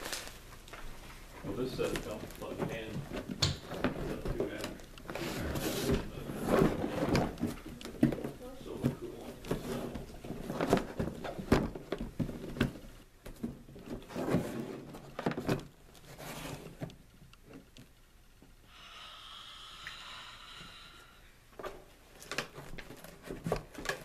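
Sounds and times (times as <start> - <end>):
packing rustling: 0.0 - 16.9.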